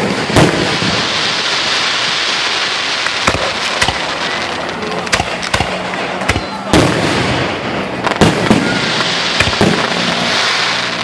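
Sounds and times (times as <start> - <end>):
firework bangs: 0.0 - 11.0
fireworks crackling hiss: 0.0 - 11.0
small firework pops: 3.0 - 7.1, 8.0 - 11.0.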